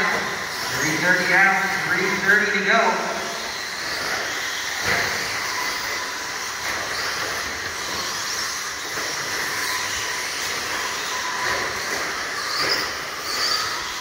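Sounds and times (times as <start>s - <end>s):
rc truck motor whine: 0.0s - 14.0s.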